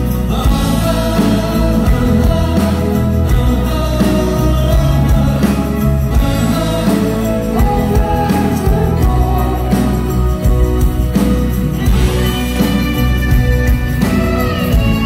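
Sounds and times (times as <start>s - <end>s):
man singing: 0.0s - 11.2s
live band playing slow song: 0.0s - 15.0s.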